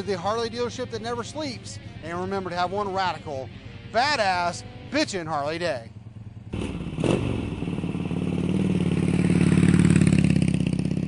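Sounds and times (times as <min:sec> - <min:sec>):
motorcycle engine starting and running: 0:05.4 - 0:11.0.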